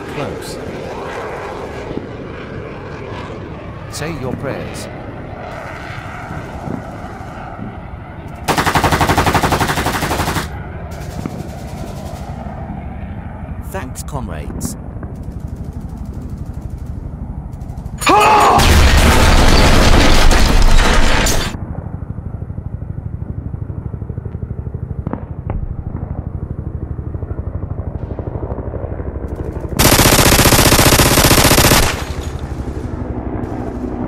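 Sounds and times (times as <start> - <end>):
machine-gun fire: 8.5 - 12.0, 29.8 - 32.8.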